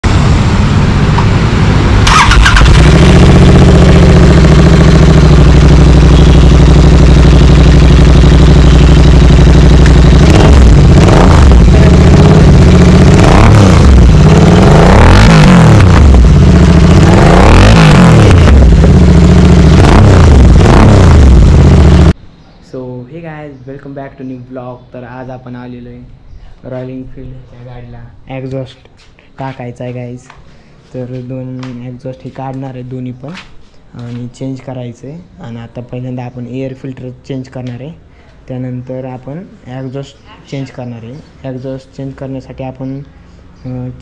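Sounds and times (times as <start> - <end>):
motorcycle engine idling and revving: 0.0 - 22.2.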